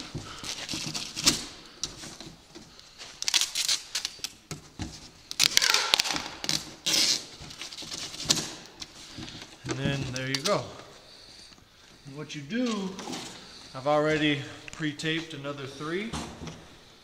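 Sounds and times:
packing tape pulled off roll: 0:00.0 - 0:04.5, 0:05.2 - 0:09.1.

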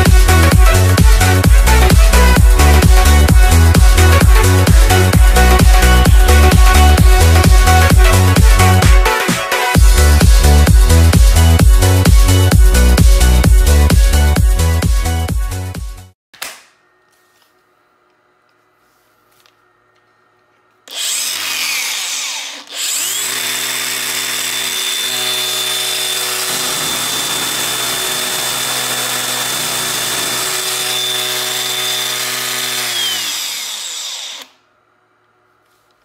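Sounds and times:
angle grinder whining: 0:20.9 - 0:34.6.

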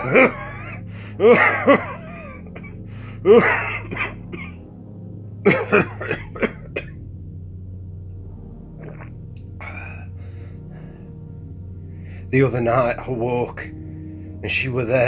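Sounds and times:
man coughing: 0:00.0 - 0:04.6, 0:05.5 - 0:07.0
ambient music drone: 0:00.0 - 0:15.0.

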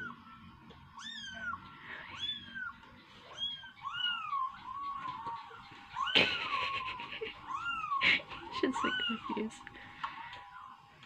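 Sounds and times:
kittens mewing: 0:01.0 - 0:09.6.

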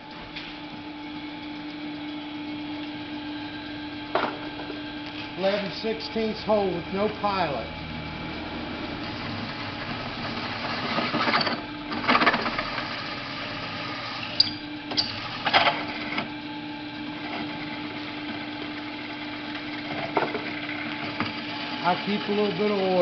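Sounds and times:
drill press motor hum: 0:02.0 - 0:23.0
drill bit grinding into pipe: 0:09.0 - 0:16.0, 0:19.8 - 0:23.0.

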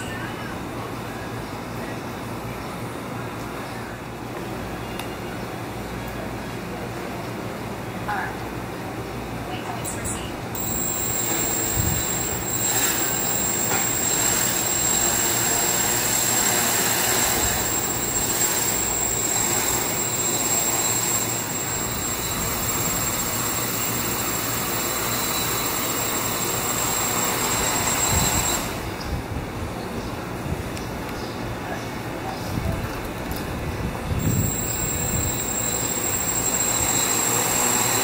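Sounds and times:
high motor whine: 0:10.5 - 0:29.2, 0:34.1 - 0:38.0
drone propellers rushing: 0:10.6 - 0:29.0, 0:34.2 - 0:38.0.

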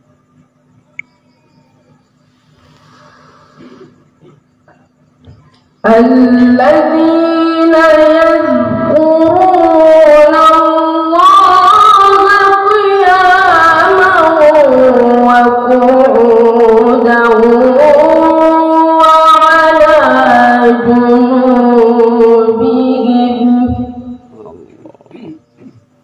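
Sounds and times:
boy reciting melodically: 0:05.8 - 0:25.4.

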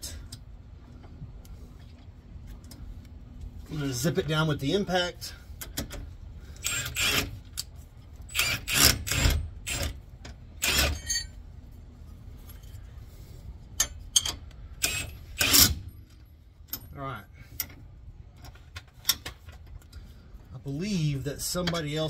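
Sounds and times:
impact wrench bursts: 0:06.5 - 0:07.4, 0:08.3 - 0:10.0, 0:10.6 - 0:11.3, 0:14.8 - 0:15.9.

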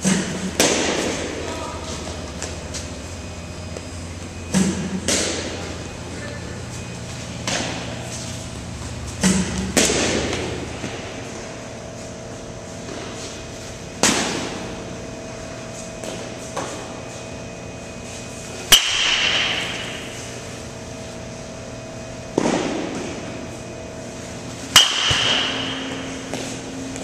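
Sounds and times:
metal bat pinging on ball: 0:24.7 - 0:26.0.

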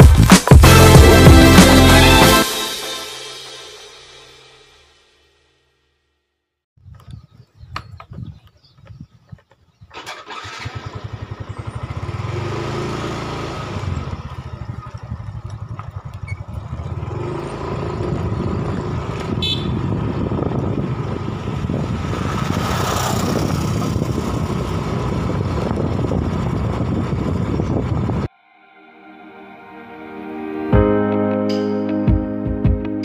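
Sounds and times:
wind noise on microphone: 0:06.8 - 0:10.6, 0:13.7 - 0:28.3
motorcycle engine running: 0:09.9 - 0:28.3.

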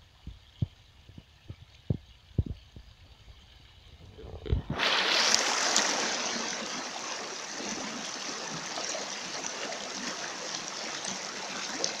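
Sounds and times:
faint water bubbling: 0:00.0 - 0:12.0
stream water rushing over rocks: 0:04.6 - 0:12.0.

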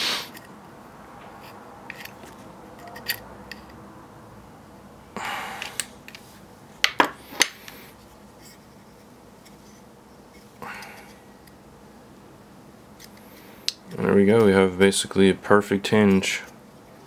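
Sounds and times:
short scrape: 0:00.0 - 0:00.5.

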